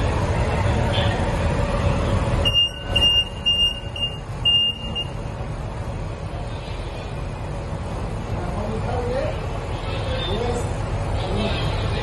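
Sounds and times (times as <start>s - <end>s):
steady low rumble: 0.0s - 12.0s
electronic warning beeps: 2.4s - 5.2s.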